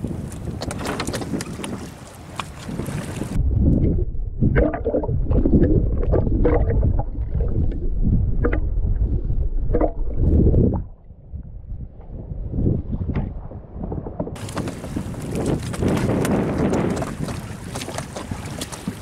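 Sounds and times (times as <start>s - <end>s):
water splashing against boat: 0.0s - 11.0s, 12.9s - 19.0s
wind: 0.0s - 19.0s
underwater rumble: 2.6s - 19.0s
underwater bubbling bursts: 3.2s - 11.7s.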